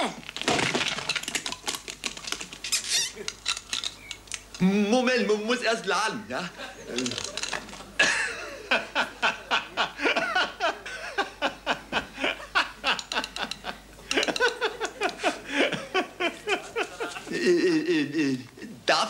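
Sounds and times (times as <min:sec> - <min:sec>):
person laughing: 0:08.0 - 0:11.4, 0:14.1 - 0:18.4.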